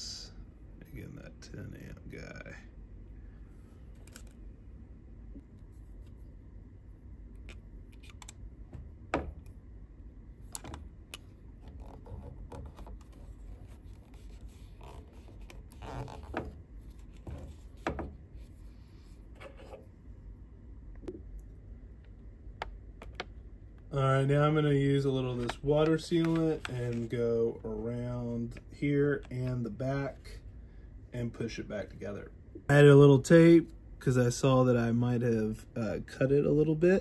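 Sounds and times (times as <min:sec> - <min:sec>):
electrical tape scratching and crinkling: 0:11.2 - 0:17.5, 0:25.1 - 0:27.3.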